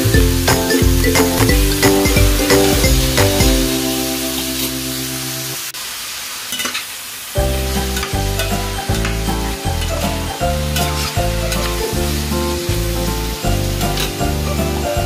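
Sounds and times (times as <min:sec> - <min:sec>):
music with bass beat: 0:00.0 - 0:04.4, 0:07.4 - 0:15.0
meat sizzling in a frying pan: 0:00.0 - 0:15.0.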